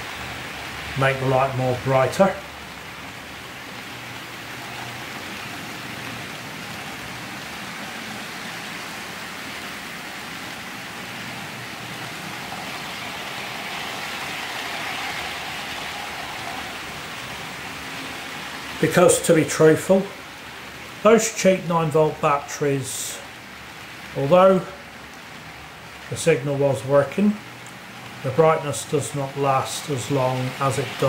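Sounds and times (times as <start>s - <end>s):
model trains rumbling on rails: 10.7s - 21.5s, 28.1s - 31.0s.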